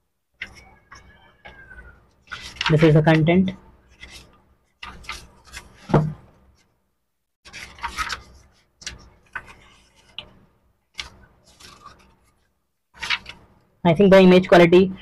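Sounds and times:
book pages turning: 0.4s - 3.2s, 3.8s - 6.7s, 7.4s - 13.6s.

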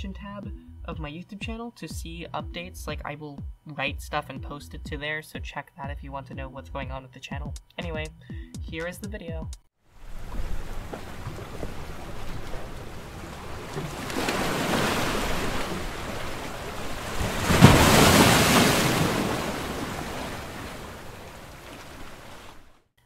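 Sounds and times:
ocean waves washing: 9.9s - 22.8s.

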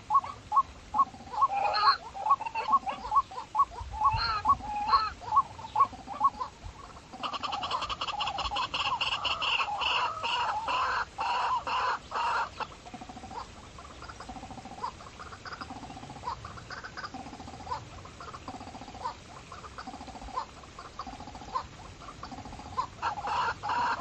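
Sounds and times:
animal calls: 0.0s - 24.0s.

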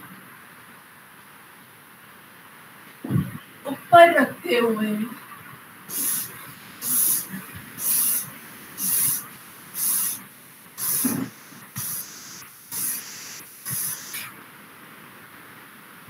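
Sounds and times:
forceful nasal breathing: 5.9s - 14.3s.

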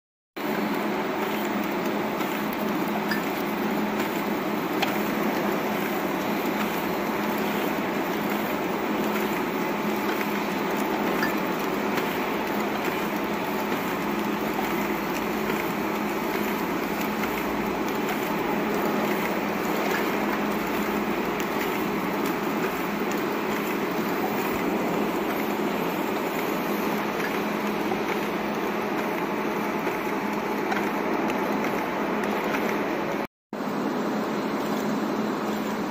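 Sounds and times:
conveyor and feeder motors whirring: 0.4s - 35.9s
machine clicks: 0.5s - 33.3s.

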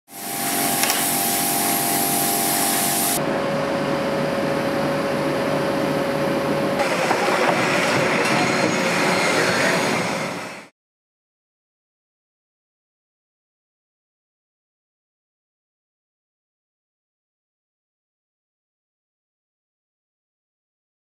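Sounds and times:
cutting torch hissing: 0.1s - 3.2s
construction site noise: 0.1s - 10.7s
crane engine running: 0.1s - 10.7s.

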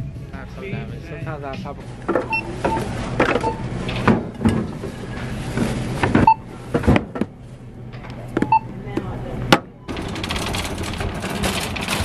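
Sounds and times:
barcode scanner beeps: 2.2s - 3.6s, 6.2s - 6.4s, 8.4s - 8.7s.

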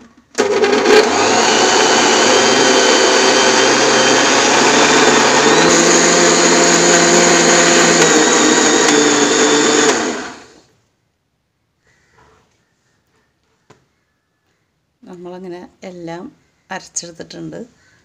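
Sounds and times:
mixer grinder running: 0.3s - 10.6s.

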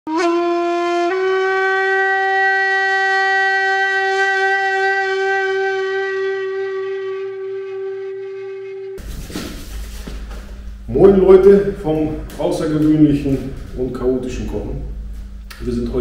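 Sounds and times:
horn-like wind instrument note: 0.1s - 9.0s.

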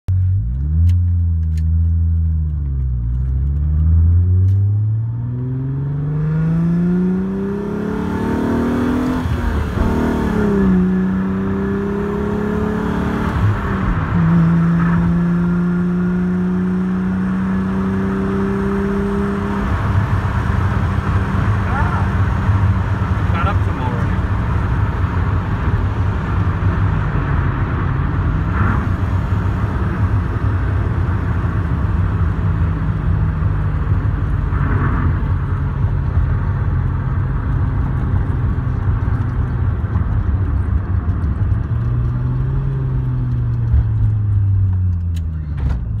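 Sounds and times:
car engine from inside cabin: 0.1s - 46.0s.

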